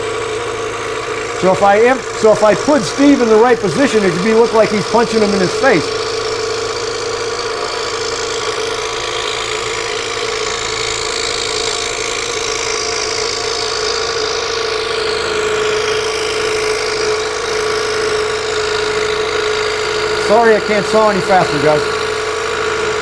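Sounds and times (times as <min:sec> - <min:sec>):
scroll saw motor hum: 0:00.0 - 0:23.0
saw blade cutting hiss: 0:00.6 - 0:14.1.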